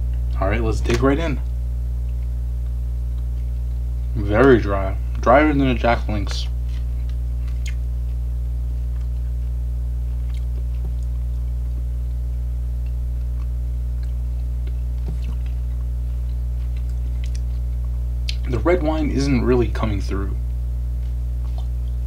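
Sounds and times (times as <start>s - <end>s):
steady electrical hum: 0.0s - 22.0s
chewing crunchy food: 1.9s - 5.3s, 6.0s - 18.5s, 20.5s - 22.0s.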